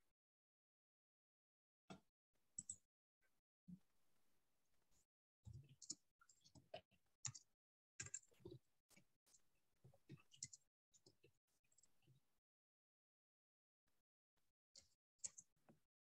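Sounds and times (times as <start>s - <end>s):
faint irregular clicks: 1.9s - 2.8s, 5.5s - 9.4s, 10.0s - 12.1s, 14.8s - 15.8s.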